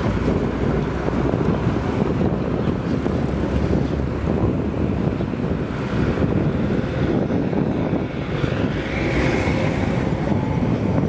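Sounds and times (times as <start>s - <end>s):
passing traffic rumble: 0.0s - 11.0s.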